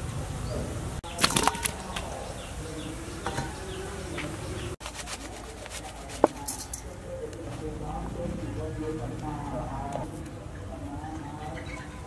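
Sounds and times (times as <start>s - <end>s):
cooking things clattering: 3.2s - 3.9s, 6.1s - 7.0s.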